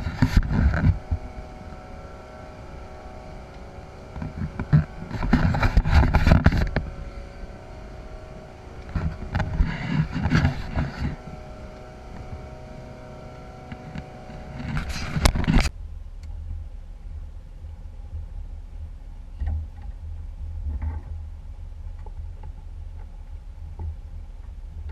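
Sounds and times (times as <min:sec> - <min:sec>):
rushing buffeting noise: 0:00.0 - 0:15.7
boat engine hum: 0:00.0 - 0:24.9.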